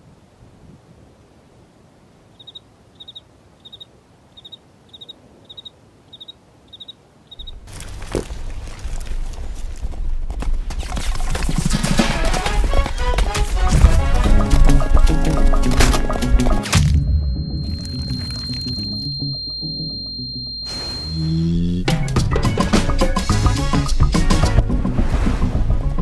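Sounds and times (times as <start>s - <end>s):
faint wind: 0.0s - 22.4s
galloping horse hooves: 7.4s - 16.8s
short high chirp: 16.9s - 22.2s.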